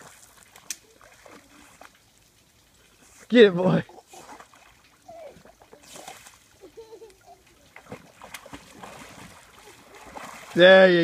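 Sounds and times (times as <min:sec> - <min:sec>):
dog splashing in water: 0:00.0 - 0:02.0, 0:07.7 - 0:11.0.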